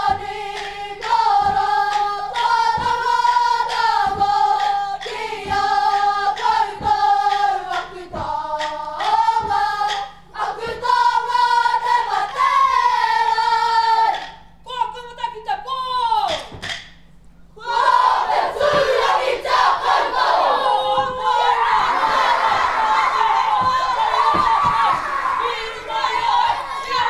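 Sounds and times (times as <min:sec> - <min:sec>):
sharp beat: 0:00.0 - 0:13.3
group singing in unison: 0:00.0 - 0:14.5, 0:17.6 - 0:27.0.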